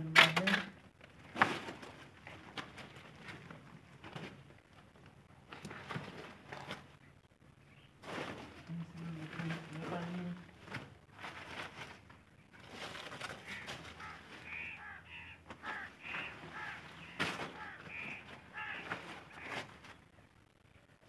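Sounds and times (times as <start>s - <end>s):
plastic sack rustling: 1.0s - 7.0s, 8.0s - 15.0s, 15.6s - 20.1s
bird calling: 13.2s - 20.0s.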